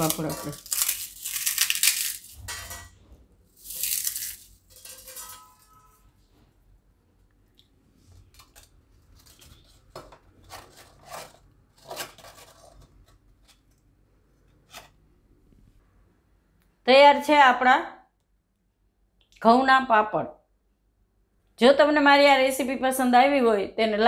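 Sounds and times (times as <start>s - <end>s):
papad crunching: 0.0s - 2.5s
pieces dropping onto steel plate: 0.0s - 3.0s, 3.6s - 5.9s.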